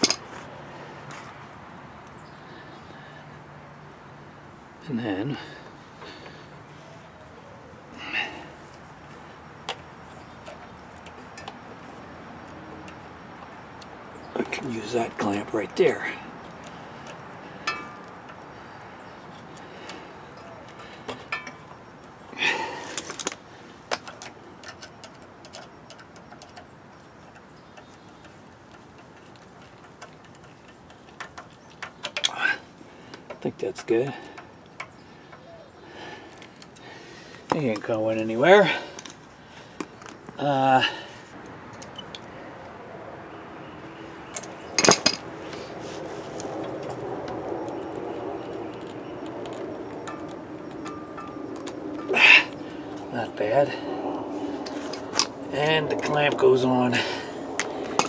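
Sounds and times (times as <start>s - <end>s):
metal clinks of hose clamp: 0.0s - 0.3s
pliers and hose clamp clicking: 48.7s - 52.6s.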